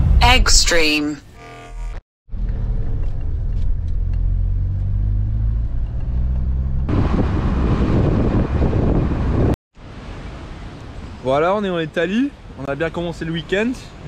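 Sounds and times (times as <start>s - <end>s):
wind and road noise: 2.3s - 14.0s.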